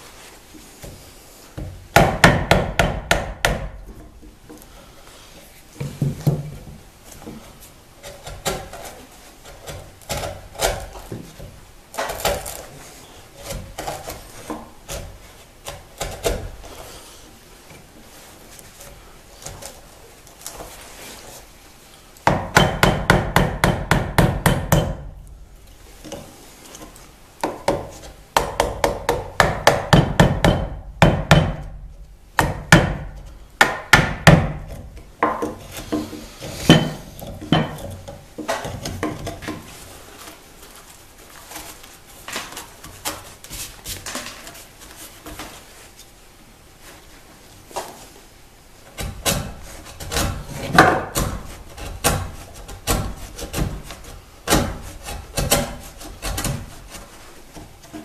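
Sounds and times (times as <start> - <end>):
chisel knocking into wood: 1.6 - 3.8, 22.2 - 25.1, 27.4 - 31.7, 32.4 - 35.6
heavy chisel strikes: 1.6 - 3.8, 22.2 - 25.1, 27.4 - 31.7, 32.4 - 39.6, 49.0 - 56.7
chisel scraping wood: 7.2 - 11.4, 34.6 - 40.4, 49.0 - 58.0.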